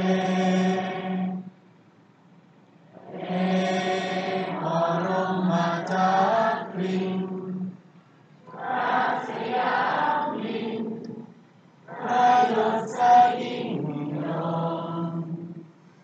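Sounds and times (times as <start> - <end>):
group chanting in unison: 0.0 - 1.4, 3.0 - 7.5, 8.4 - 11.3, 11.9 - 15.5.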